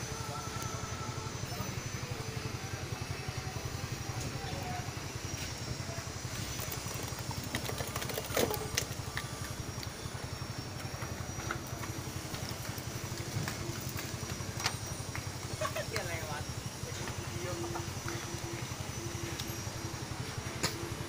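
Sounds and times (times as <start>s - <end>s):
engine idling: 0.0s - 21.0s
faint high whine: 0.0s - 21.0s.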